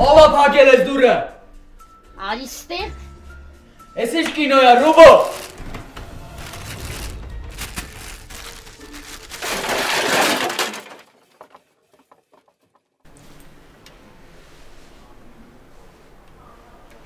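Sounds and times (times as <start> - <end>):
glass breaking crash: 5.3 - 11.3.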